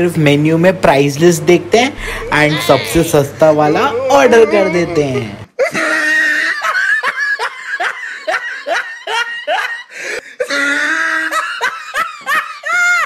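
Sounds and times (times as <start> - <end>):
girl giggling: 2.0 - 3.2, 4.1 - 9.9.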